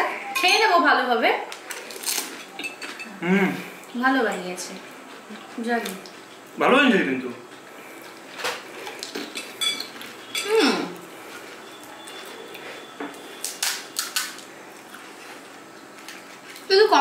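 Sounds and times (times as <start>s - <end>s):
crisp shells cracking: 1.5s - 2.3s, 13.4s - 14.5s
spoons clinking on glass bowls: 9.4s - 10.5s.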